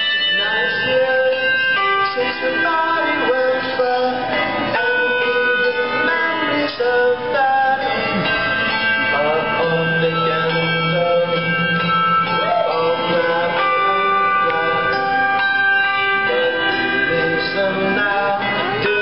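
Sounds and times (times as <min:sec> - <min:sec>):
handbells playing a tune: 0:00.0 - 0:19.0.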